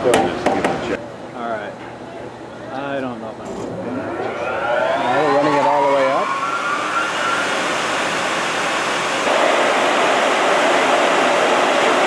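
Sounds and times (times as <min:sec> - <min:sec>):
electric motor rushing noise: 0:03.5 - 0:12.0.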